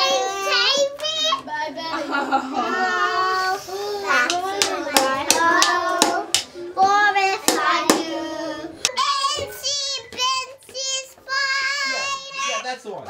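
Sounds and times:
children singing: 0.0s - 12.6s
child singing high wavering: 2.6s - 12.6s
hand claps: 4.2s - 6.5s, 7.4s - 8.1s.

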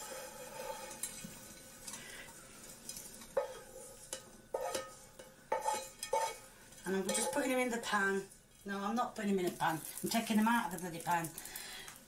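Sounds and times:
utensil scraping a frying pan: 0.0s - 8.8s.

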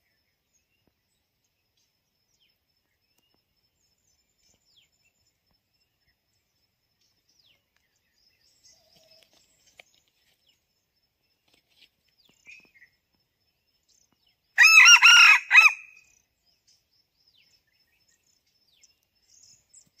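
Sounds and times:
faint high bird chirps: 0.0s - 20.0s
rooster crowing: 14.6s - 16.0s.

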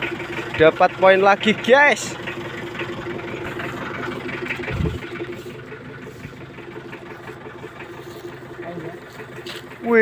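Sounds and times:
engine idling: 0.0s - 10.0s
dull low bump: 3.1s - 7.8s
light rustling: 3.3s - 9.8s.

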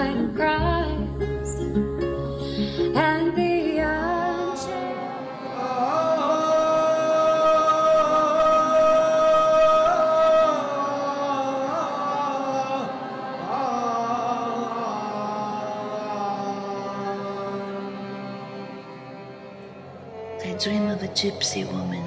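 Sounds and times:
plucked-string and upright bass song: 0.0s - 4.4s
man chant-style singing: 4.2s - 18.8s.

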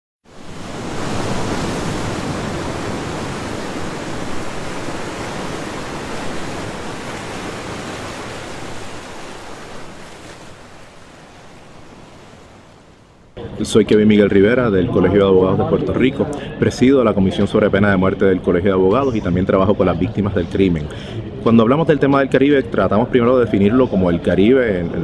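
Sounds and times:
ocean waves rushing: 0.2s - 14.6s.

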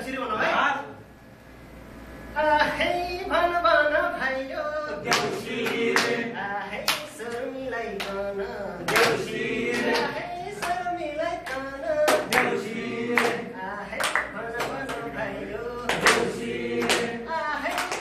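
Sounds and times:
group singing: 2.5s - 18.0s
hand claps: 5.0s - 6.2s, 6.8s - 8.2s, 8.8s - 15.2s, 15.8s - 18.0s.

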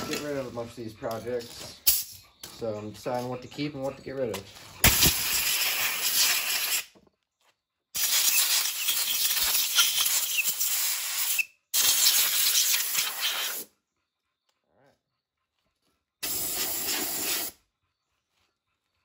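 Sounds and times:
compressed air hissing: 4.8s - 6.9s, 8.0s - 13.7s, 16.2s - 17.6s.

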